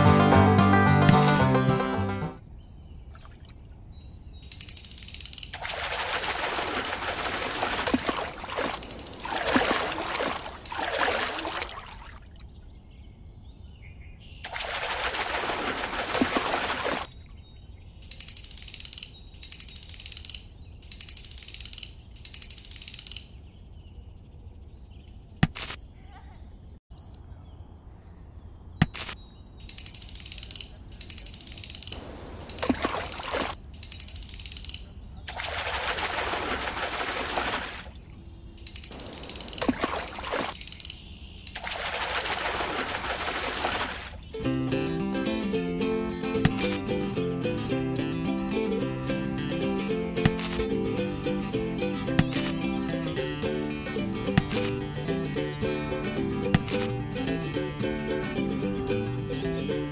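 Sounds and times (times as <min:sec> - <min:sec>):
water splashing and streaming: 0:03.0 - 0:03.9, 0:04.5 - 0:12.7, 0:14.4 - 0:17.4, 0:31.2 - 0:33.6, 0:35.2 - 0:40.8, 0:41.4 - 0:59.9
sharp clicks: 0:04.4 - 0:05.6, 0:18.0 - 0:23.4, 0:25.4 - 0:25.8, 0:28.8 - 0:34.9, 0:38.6 - 0:43.9, 0:46.4 - 0:46.8, 0:50.2 - 0:50.7, 0:52.1 - 0:52.6, 0:54.3 - 0:54.8, 0:56.5 - 0:57.0
chirping bursts: 0:28.9 - 0:35.0, 0:38.6 - 0:46.8.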